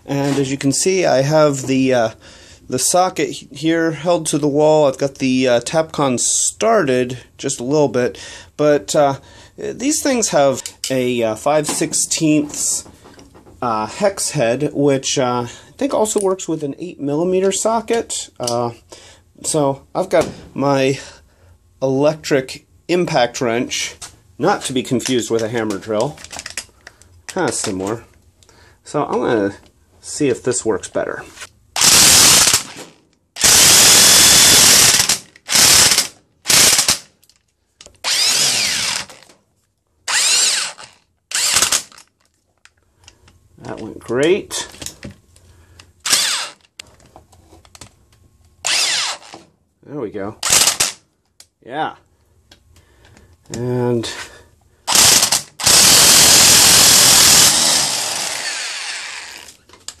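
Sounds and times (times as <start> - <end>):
impact wrench driving screw: 31.8 - 37.1, 38.0 - 39.3, 40.1 - 42.0, 46.0 - 46.7, 48.6 - 49.4, 50.4 - 51.0, 54.9 - 59.6.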